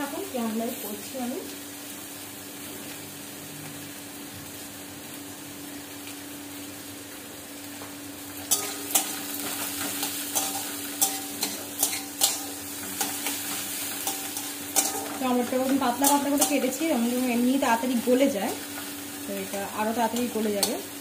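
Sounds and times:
food sizzling in oil: 0.0 - 21.0
metal spatula scraping pan: 8.5 - 16.7.

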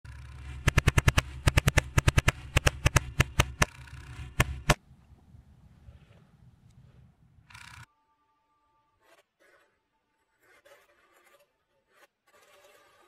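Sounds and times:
low hum: 0.0 - 7.9
pellet gun firing rapid shots: 0.2 - 4.8.

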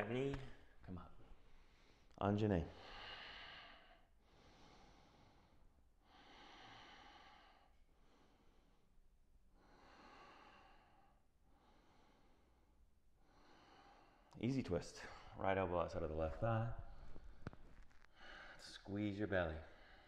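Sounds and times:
man breathing slowly: 1.4 - 14.4, 16.8 - 18.8, 19.6 - 20.0.

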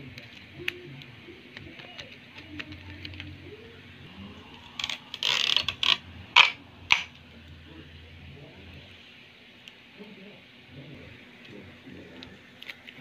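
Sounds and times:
sticky tape ripping off a roll: 4.8 - 7.1
tape snapping: 4.8 - 7.2.

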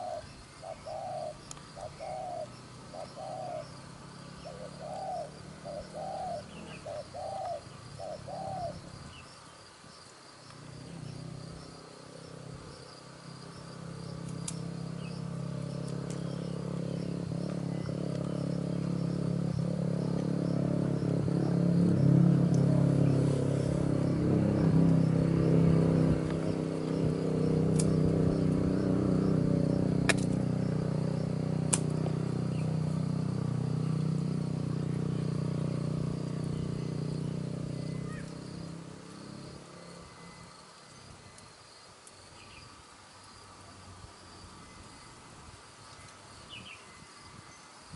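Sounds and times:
dove cooing: 0.0 - 9.0
engine hum: 0.0 - 9.6, 10.4 - 46.8
insect buzz: 0.0 - 47.9.

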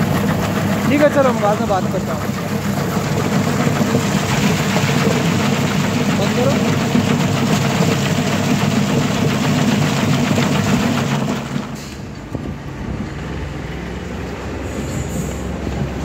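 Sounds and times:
garlic cloves rattling in drum: 0.0 - 11.5.

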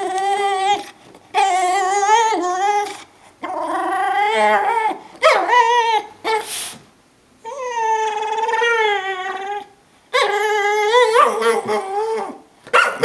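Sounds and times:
dog whining: 0.0 - 6.8, 7.4 - 13.0
dog yip: 5.2 - 6.5, 10.1 - 13.0.

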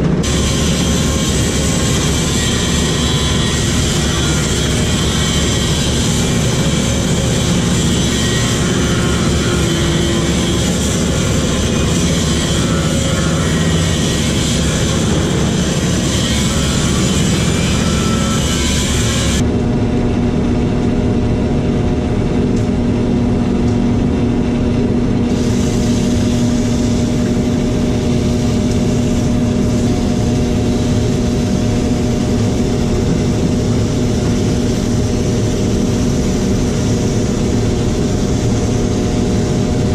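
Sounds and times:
wood hissing being shaped: 0.2 - 19.4, 25.3 - 39.9
wood lathe humming: 0.2 - 19.4.

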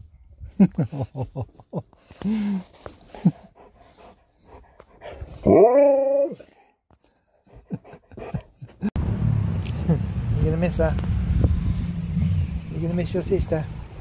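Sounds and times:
dog howling woo: 5.4 - 6.5
dog whining: 5.4 - 6.6.

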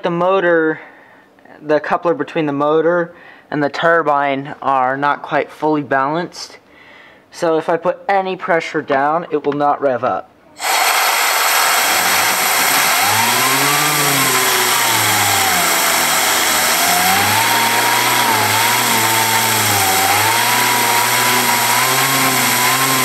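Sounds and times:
air turbine whine: 10.6 - 22.0
compressed air hissing: 10.6 - 23.0.

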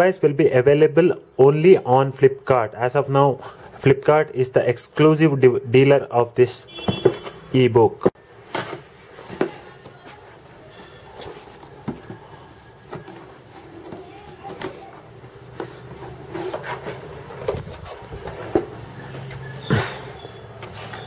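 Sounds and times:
cardboard rubbing and sliding: 8.4 - 18.9.

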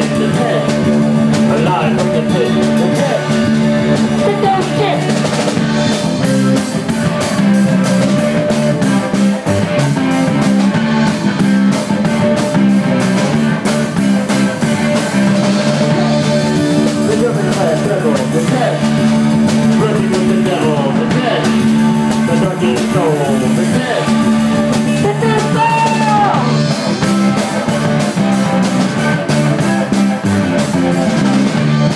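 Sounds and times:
guitar: 0.0 - 31.9
steady drum beat: 0.0 - 31.9.

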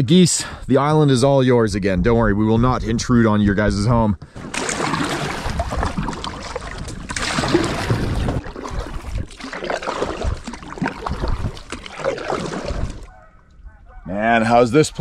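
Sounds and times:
kayak paddle splashing water: 4.3 - 13.2.

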